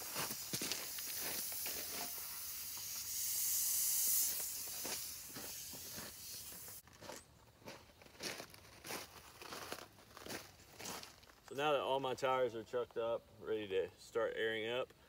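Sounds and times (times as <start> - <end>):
footsteps on gravel and leaves: 0.0 - 2.3, 4.2 - 11.6
compressed air hissing: 0.0 - 6.8.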